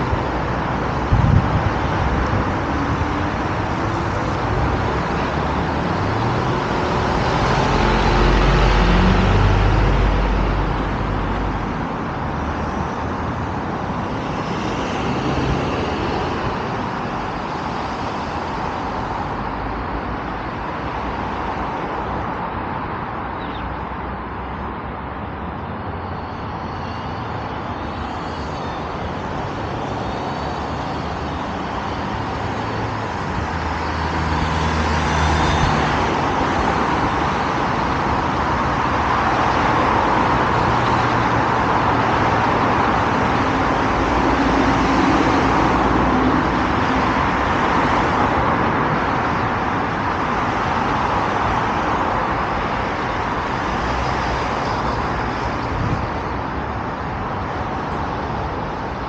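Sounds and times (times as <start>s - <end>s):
cars passing: 0.0s - 59.0s.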